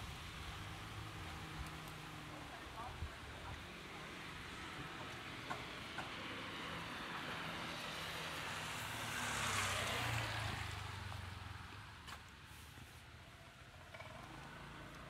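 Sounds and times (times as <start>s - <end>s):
tyres hissing on wet road: 0.0s - 15.0s.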